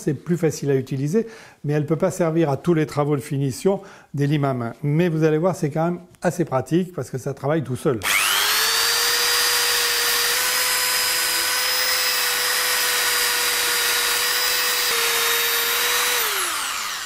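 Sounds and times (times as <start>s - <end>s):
belt file motor whine: 8.0s - 17.0s.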